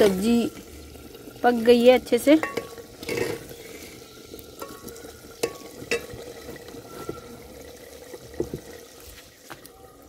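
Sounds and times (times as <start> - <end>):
ladle clinking against metal pot: 2.4 - 3.5, 4.5 - 7.3.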